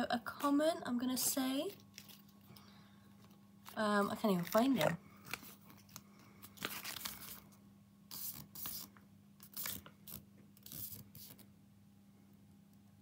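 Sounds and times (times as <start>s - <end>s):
plastic packaging rustling: 1.2s - 2.5s, 3.2s - 7.5s.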